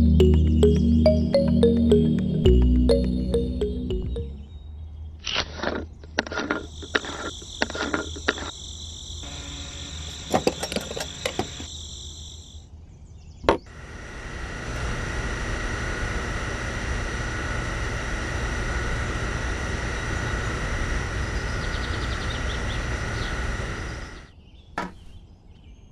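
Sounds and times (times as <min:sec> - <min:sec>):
mechanical hum with high whistle: 0:06.7 - 0:24.4
steady high whine: 0:06.8 - 0:12.6, 0:13.7 - 0:24.3.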